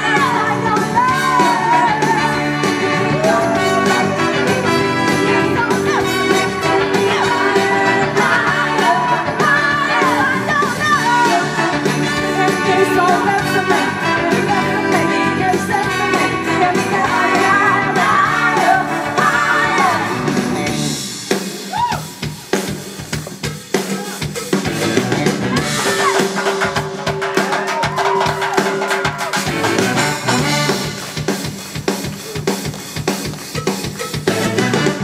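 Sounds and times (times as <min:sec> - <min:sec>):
woman singing: 0:00.0 - 0:20.2
drums: 0:00.0 - 0:35.0
soul band playing: 0:00.0 - 0:35.0.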